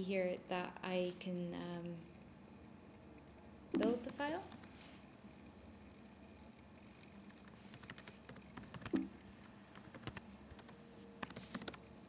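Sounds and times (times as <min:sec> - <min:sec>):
keyboard keys clicking: 0:07.3 - 0:09.1, 0:09.8 - 0:11.8.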